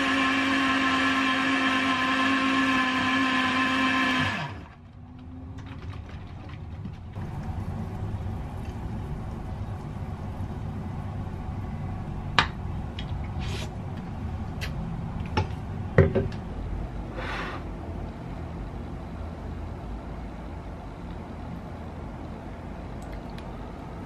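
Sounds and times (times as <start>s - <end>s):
blender motor running: 0.0s - 4.8s
low steady rumble: 4.7s - 24.0s.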